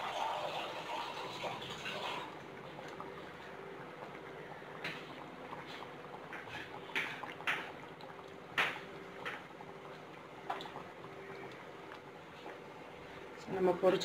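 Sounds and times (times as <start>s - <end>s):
curry bubbling in a pot: 0.0s - 13.9s
meatballs plopping into liquid: 4.8s - 12.1s.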